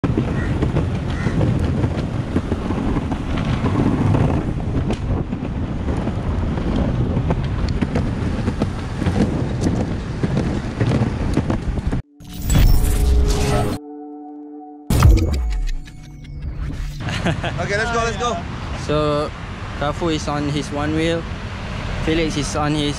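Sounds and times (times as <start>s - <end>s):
skateboard wheels rolling on concrete: 0.0s - 12.0s
wind buffeting microphone: 0.0s - 12.0s
electronic intro sound: 12.1s - 17.1s.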